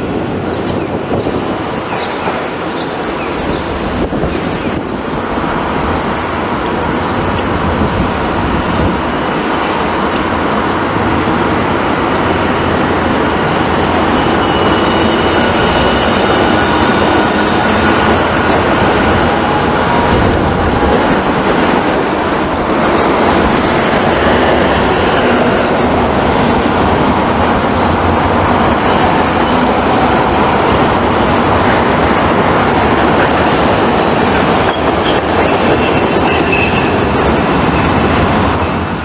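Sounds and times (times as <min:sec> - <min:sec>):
road traffic: 0:00.0 - 0:39.0
trams rolling on track: 0:00.0 - 0:39.0.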